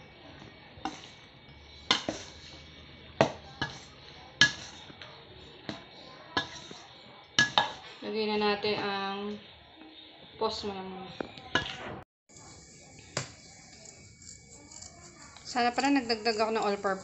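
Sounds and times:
metal ladle scraping steel bowl: 1.9 - 2.6, 3.6 - 4.9, 12.9 - 17.0.

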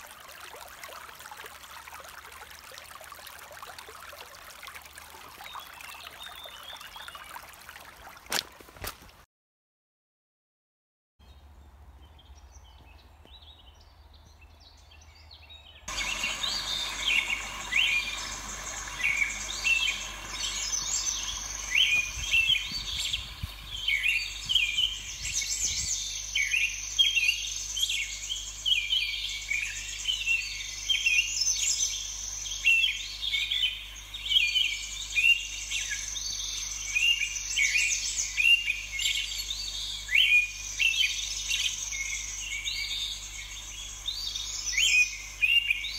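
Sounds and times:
songbirds chorus: 0.0 - 8.2, 11.3 - 45.9.

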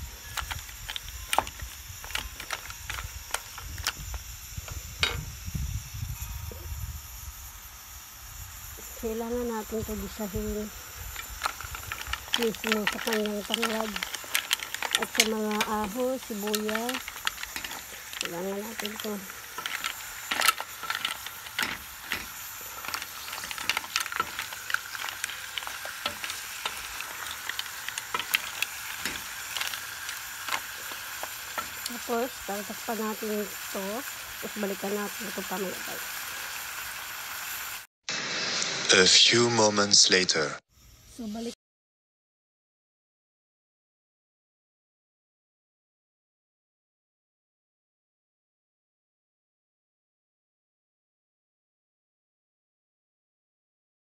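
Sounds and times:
sizzling hiss: 0.0 - 39.3
mussel shells clacking: 0.2 - 4.1, 11.0 - 32.8.

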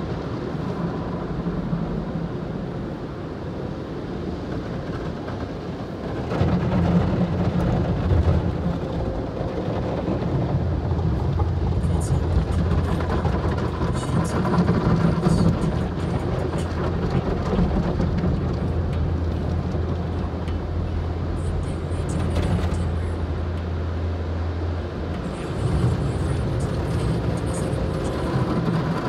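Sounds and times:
steady low hum: 5.8 - 29.0.

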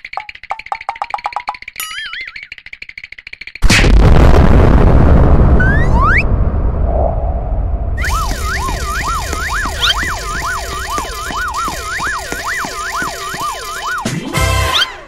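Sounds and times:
low explosion rumble: 3.6 - 12.1
cartoon siren wailing: 5.6 - 6.2, 8.0 - 15.0.

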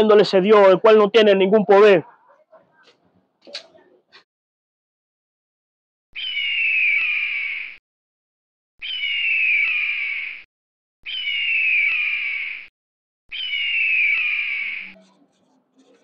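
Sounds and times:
bird screeching: 6.2 - 7.8, 8.8 - 10.4, 11.1 - 12.7, 13.3 - 15.0.

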